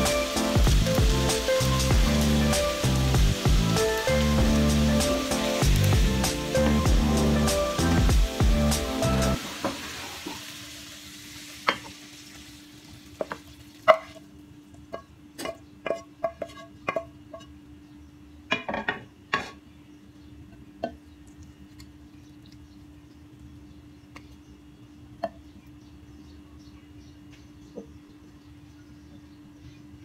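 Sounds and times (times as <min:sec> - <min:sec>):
background music: 0:00.0 - 0:09.4
food sizzling: 0:00.0 - 0:14.6.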